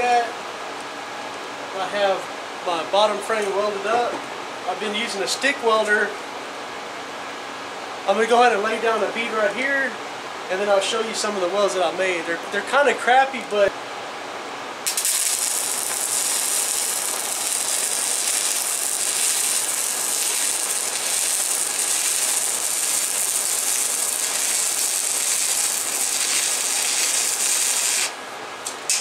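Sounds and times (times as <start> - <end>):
welding arc crackling: 14.8 - 29.0.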